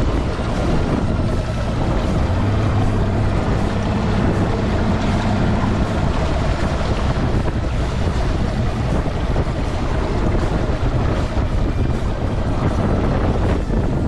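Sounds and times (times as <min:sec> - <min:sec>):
outboard motor running: 0:00.0 - 0:14.0
water washing against hull: 0:00.0 - 0:14.0
wind buffeting microphone: 0:00.0 - 0:14.0.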